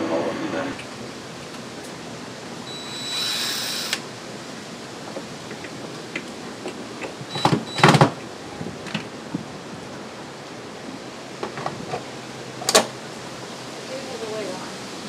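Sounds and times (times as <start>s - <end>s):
cordless drill whirring: 2.7s - 4.0s.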